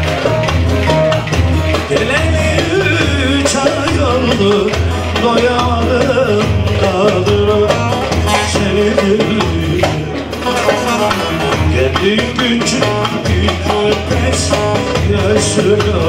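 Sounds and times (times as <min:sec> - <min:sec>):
low hand-drum beats: 0:00.0 - 0:16.0.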